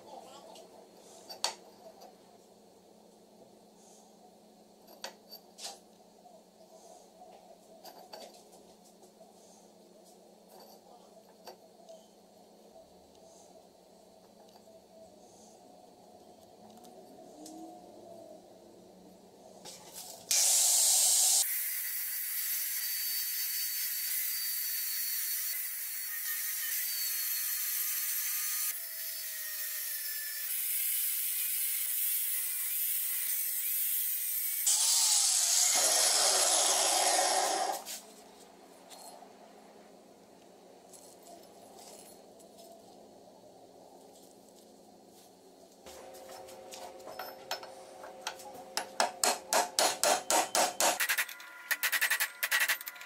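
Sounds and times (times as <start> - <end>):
angle grinder cutting metal: 20.3 - 37.8.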